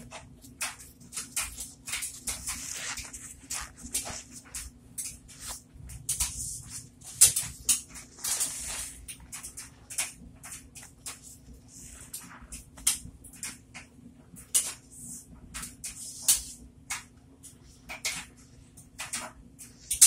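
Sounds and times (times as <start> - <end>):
sponge squelching in soapy foam: 0.0 - 10.1.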